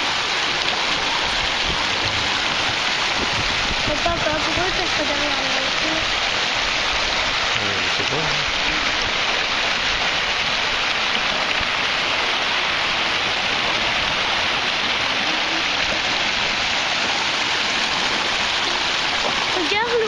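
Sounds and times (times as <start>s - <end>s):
river rushing over rocks: 0.0s - 20.0s.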